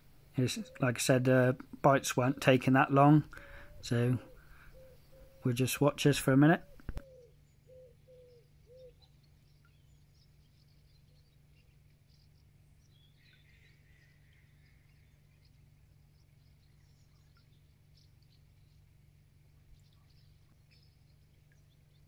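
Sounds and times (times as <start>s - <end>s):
small birds chirping: 0.4s - 22.0s
pigeon cooing: 3.6s - 5.5s.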